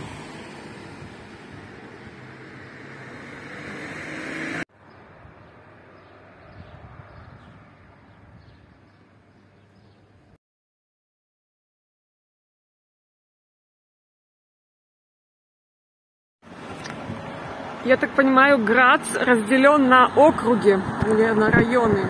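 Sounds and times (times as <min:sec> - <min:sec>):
vehicle passing: 0:00.0 - 0:08.2
steady street hum: 0:00.0 - 0:10.4, 0:16.4 - 0:22.0.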